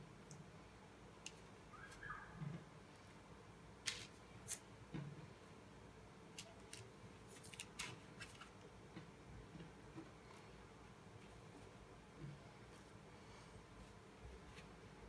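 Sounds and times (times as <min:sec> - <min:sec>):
parchment paper crinkling: 0:06.3 - 0:08.6.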